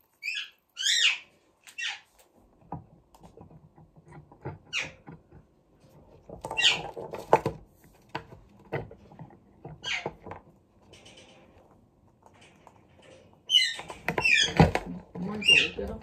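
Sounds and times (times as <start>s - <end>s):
parakeet chirping: 0.0s - 2.1s, 9.8s - 10.2s, 13.4s - 16.0s.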